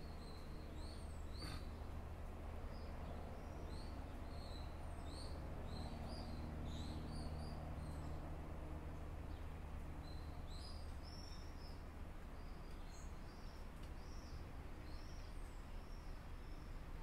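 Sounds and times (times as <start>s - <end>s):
small birds chirping: 0.0s - 2.0s, 9.3s - 17.0s.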